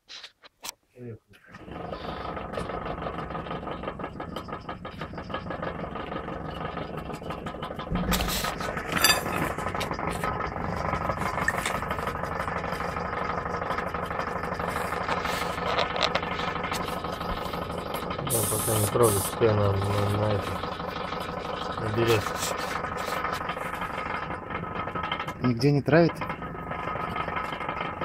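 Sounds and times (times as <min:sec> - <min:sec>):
compressor humming and rattling: 0:01.4 - 0:28.0
thump: 0:07.9 - 0:08.5.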